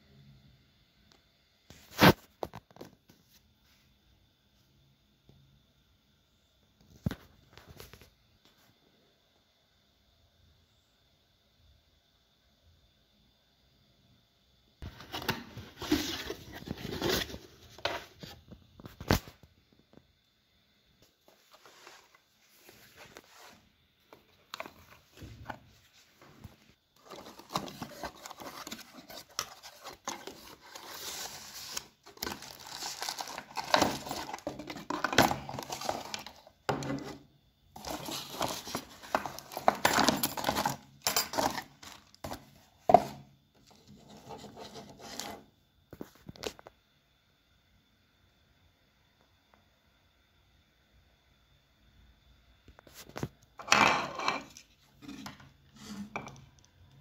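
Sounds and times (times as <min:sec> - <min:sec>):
cardboard rustling and scraping: 0:14.8 - 0:19.3, 0:21.2 - 0:37.2, 0:37.8 - 0:45.5, 0:53.0 - 0:56.3.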